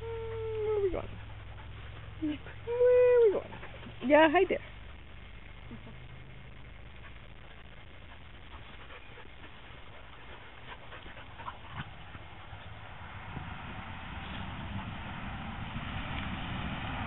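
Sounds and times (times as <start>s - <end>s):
puppies yipping: 0.0s - 5.0s, 7.0s - 12.8s
low background rumble: 0.0s - 17.0s.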